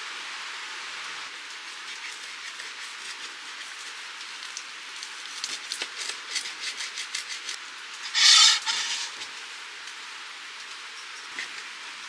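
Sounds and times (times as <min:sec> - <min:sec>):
steady hiss: 0:00.0 - 0:12.0
cutlery scraping plate: 0:08.0 - 0:09.3.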